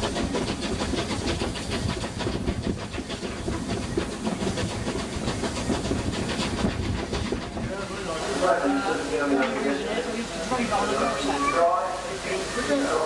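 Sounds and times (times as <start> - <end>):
train wheels clattering on rails: 0.0 - 11.3
steam locomotive exhaust beats: 0.0 - 13.0.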